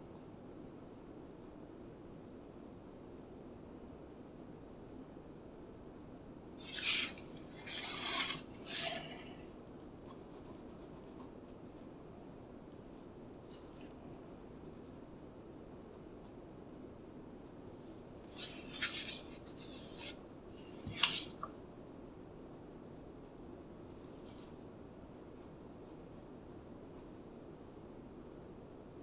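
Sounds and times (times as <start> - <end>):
pencil scratching on paper: 6.6 - 11.8, 18.3 - 21.4.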